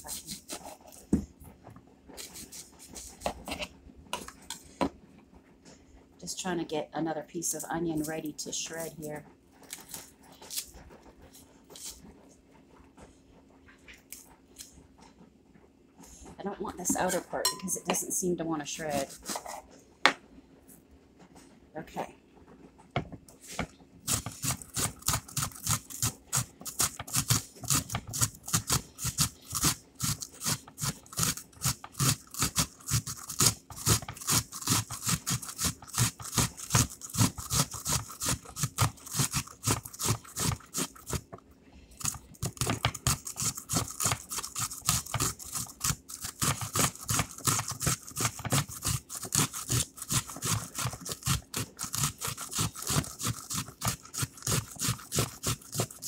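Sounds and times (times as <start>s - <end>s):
onion rasping on box grater: 0.0s - 1.2s, 2.2s - 3.7s, 7.4s - 12.0s, 18.7s - 19.6s, 23.4s - 56.0s.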